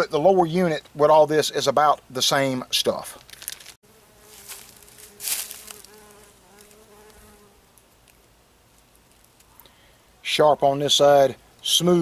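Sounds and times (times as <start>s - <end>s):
flying insect buzzing: 3.8s - 9.5s.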